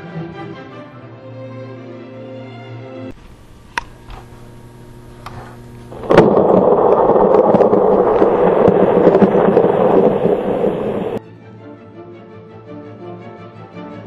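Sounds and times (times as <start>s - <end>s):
thunder crack: 5.9s - 11.2s
thunder rumble: 5.9s - 11.2s.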